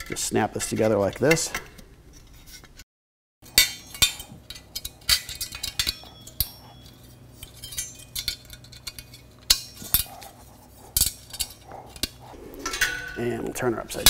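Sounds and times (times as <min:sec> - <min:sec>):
sheet metal clinking and clicking: 0:03.5 - 0:10.3, 0:11.0 - 0:14.0.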